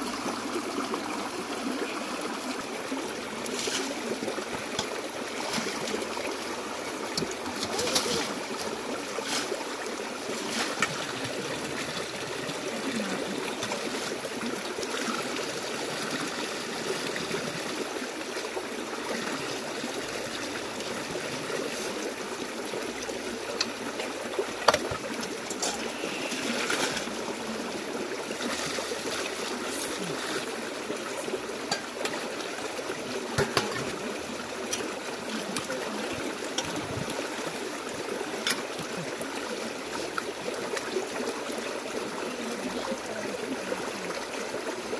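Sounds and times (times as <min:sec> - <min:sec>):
stream running over stones: 0:00.0 - 0:44.9
water splashing in a metal bowl: 0:33.3 - 0:35.8.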